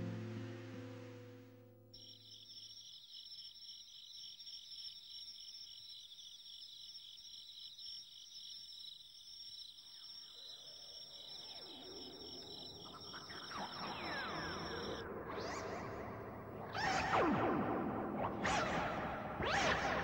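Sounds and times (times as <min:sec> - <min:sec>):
crickets chirping: 0:00.0 - 0:16.9.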